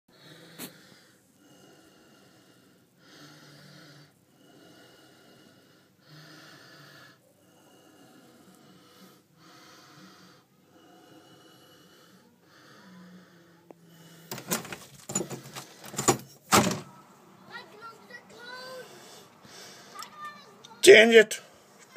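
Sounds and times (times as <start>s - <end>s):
person breathing slowly: 0.1s - 14.4s, 18.4s - 20.1s
sharp knocks and clatters: 14.3s - 16.9s.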